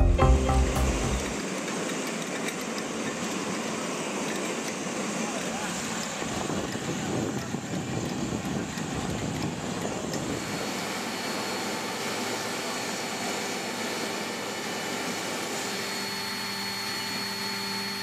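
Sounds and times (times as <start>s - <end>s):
aircraft machinery hum: 4.7s - 18.0s.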